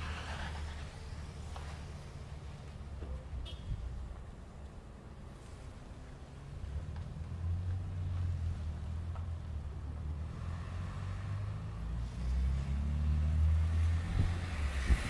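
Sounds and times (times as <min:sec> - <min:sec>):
vehicle driving past: 0:07.0 - 0:15.0.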